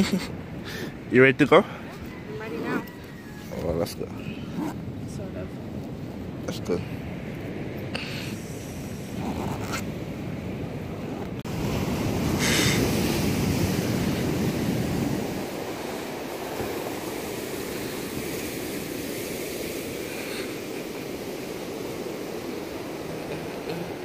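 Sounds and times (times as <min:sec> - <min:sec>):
surf washing on pebbly beach: 0:06.5 - 0:24.0.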